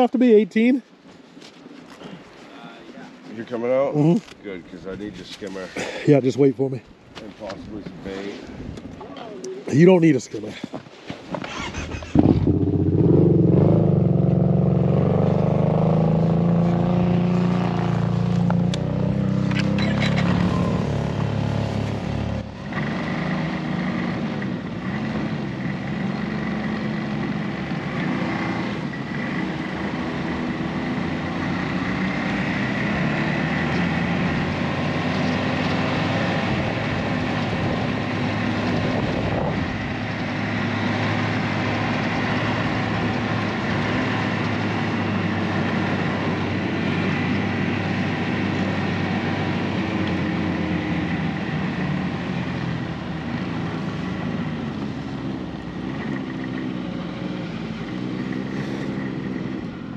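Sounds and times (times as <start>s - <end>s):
snowmobile engine: 11.4s - 59.9s
wind noise: 36.5s - 40.3s.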